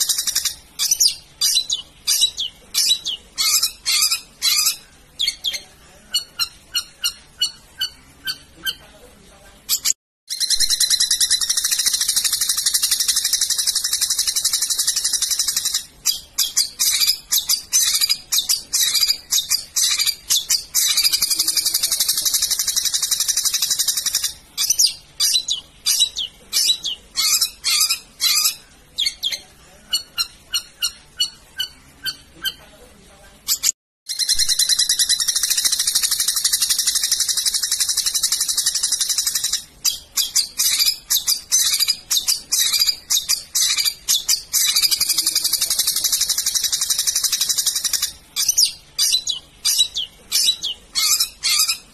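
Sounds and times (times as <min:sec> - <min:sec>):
bird high-pitched chatter: 0:00.0 - 0:09.0, 0:09.6 - 0:32.8, 0:33.4 - 0:51.9
bird repeated notes: 0:09.7 - 0:32.6.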